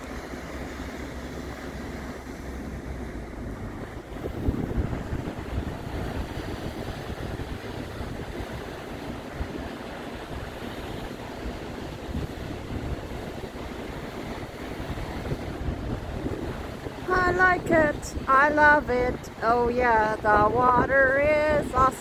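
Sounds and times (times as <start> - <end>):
lake waves against rocks: 0.0 - 22.0
wind buffeting microphone: 0.0 - 22.0.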